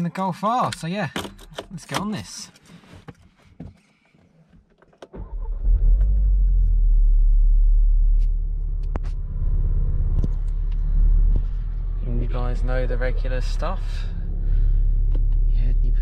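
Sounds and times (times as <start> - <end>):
car engine starting and idling: 4.8 - 16.0.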